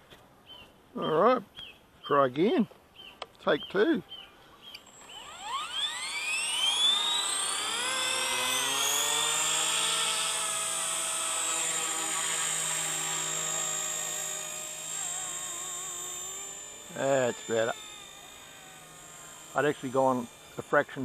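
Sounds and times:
electric motor whine: 4.6s - 21.0s
helicopter rotor hum: 4.8s - 21.0s.

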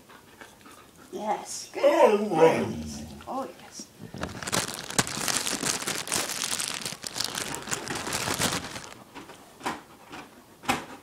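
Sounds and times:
crinkling and rustling: 4.0s - 10.2s.

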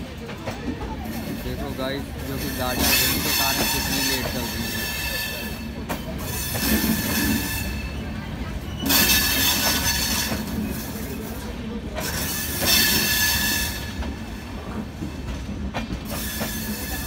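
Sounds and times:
train coaches rumbling past: 0.0s - 17.0s
metallic wheel squeal: 2.5s - 11.2s, 12.1s - 14.0s.

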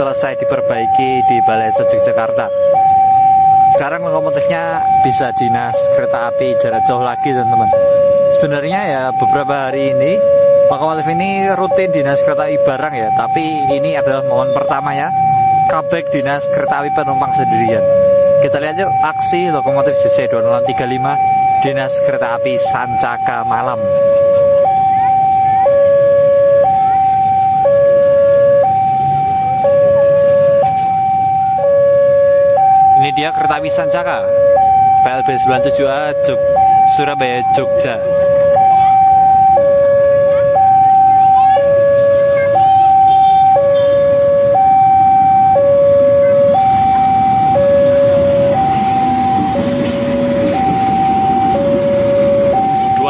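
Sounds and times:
level crossing two-tone alarm: 0.0s - 53.0s
passing train rumble: 44.1s - 53.0s.

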